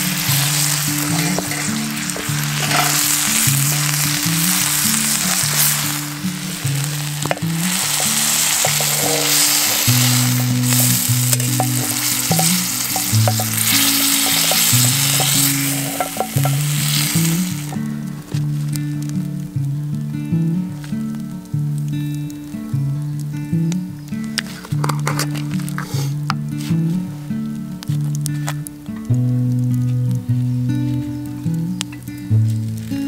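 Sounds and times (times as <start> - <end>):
food sizzling in a pan: 0.0 - 18.7
instrumental music: 0.0 - 33.0.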